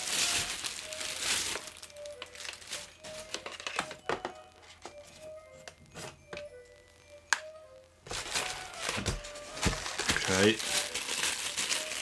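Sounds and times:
plastic bag crinkling: 0.0 - 4.0, 8.1 - 12.0
soft background music: 0.0 - 12.0.

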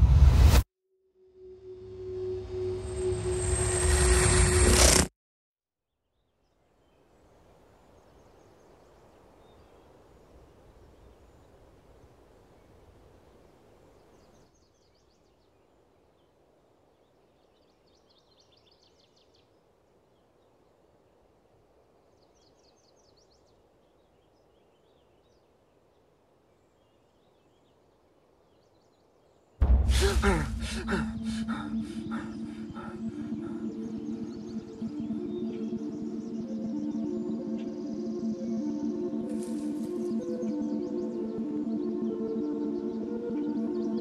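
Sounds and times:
faint woodland ambience: 5.9 - 44.0
distant bird chirps: 22.0 - 44.0.

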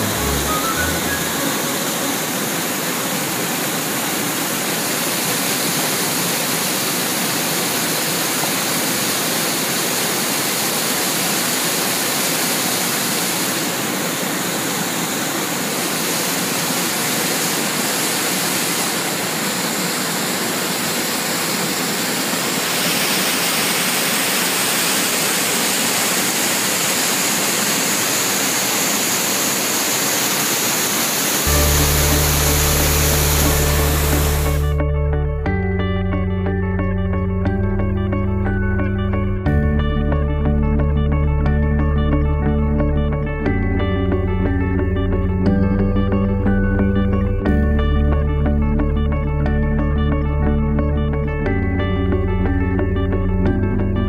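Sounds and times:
water rushing over rocks: 0.0 - 34.6.

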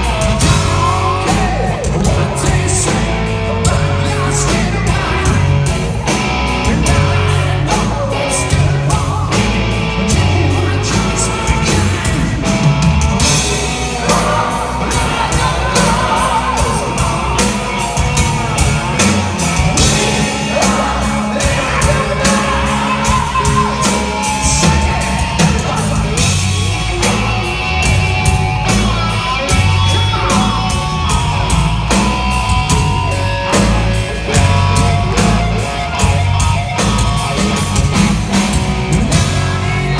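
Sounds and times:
man singing and shouting: 0.0 - 12.6, 13.2 - 37.4
bass guitar: 0.0 - 39.9
electric guitar: 0.0 - 39.9
steady drum beat: 0.0 - 39.9.

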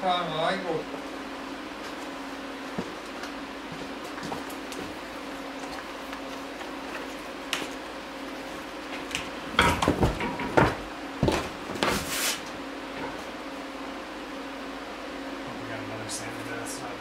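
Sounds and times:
steady low hum: 0.0 - 17.0
wood and tools clattering on workbench: 9.0 - 12.1.

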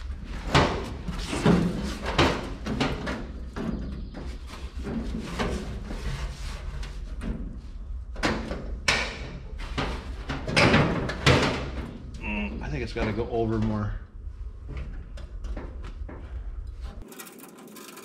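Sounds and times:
metal clunks and knocks: 8.2 - 12.0.

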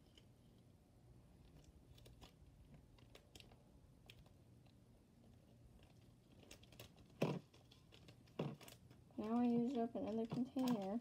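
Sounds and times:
plastic bag crinkling: 5.7 - 11.0.

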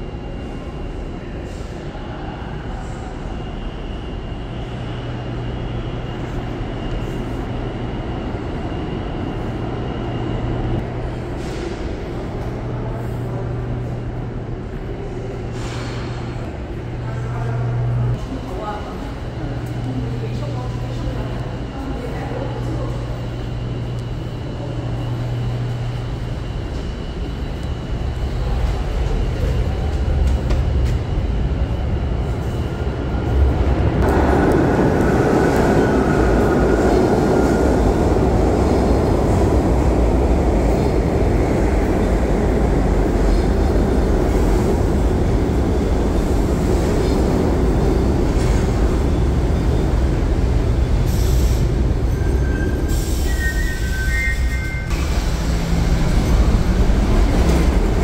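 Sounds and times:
train rumbling: 0.0 - 58.0
low station hum: 54.9 - 58.0.

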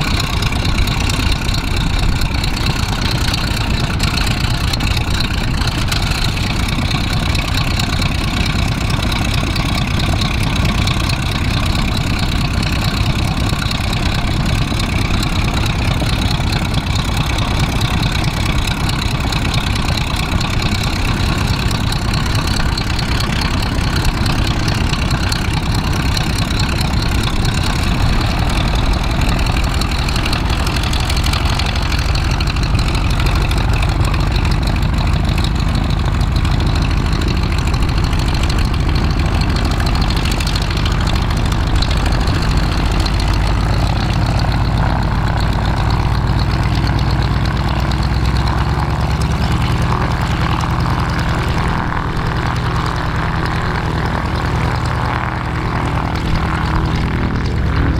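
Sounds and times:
biplane engine idling: 0.0 - 57.9.

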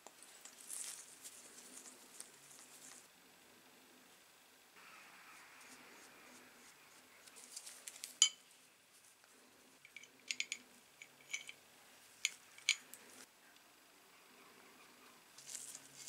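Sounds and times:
metal pincer parts clinking: 9.9 - 11.6, 12.2 - 13.1.

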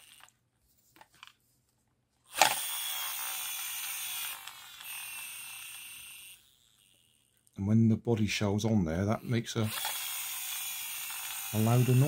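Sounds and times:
toy car flywheel gears whirring: 0.0 - 0.4, 2.3 - 7.6, 9.1 - 12.0.

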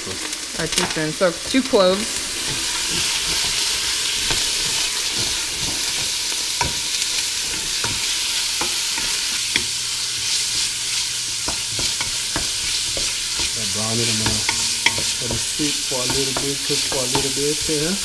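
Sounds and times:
meat and onions sizzling in oil: 0.0 - 18.0
wooden spoon knocking against pot: 11.4 - 18.0.

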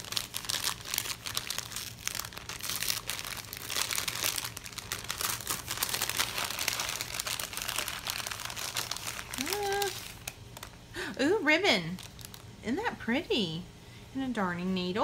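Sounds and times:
paper bag crinkling: 0.0 - 10.9, 11.7 - 12.6.

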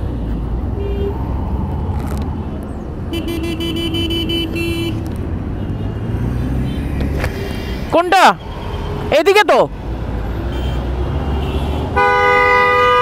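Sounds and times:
vehicle horn beeping: 3.1 - 5.0, 10.5 - 13.0.

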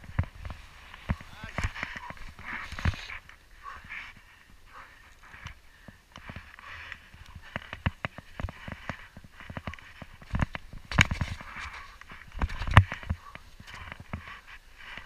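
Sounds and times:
skis scraping on hard snow: 0.0 - 3.3
skis and poles knocking: 0.0 - 15.0.

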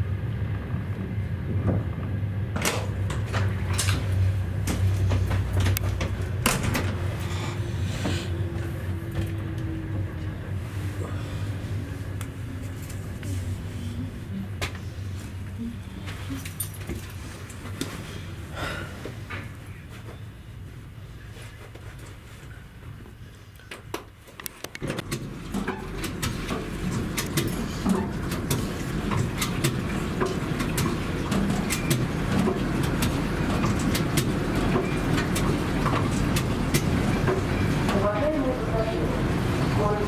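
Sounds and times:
train rumbling: 0.0 - 40.0
wheels clicking on track: 24.7 - 40.0.

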